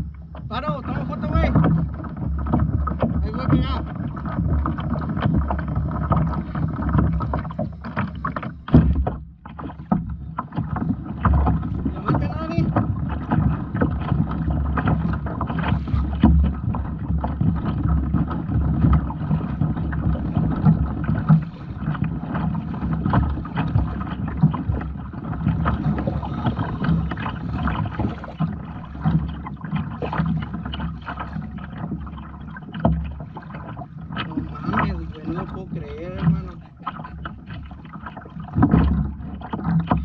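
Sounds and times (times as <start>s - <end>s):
water splashing against hull: 0.0s - 40.0s
small knocks: 0.2s - 24.9s.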